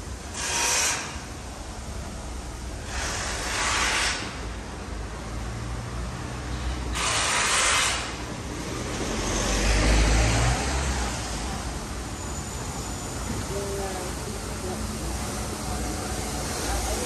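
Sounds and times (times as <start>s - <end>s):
passing vehicle engine rumble: 7.9s - 17.0s.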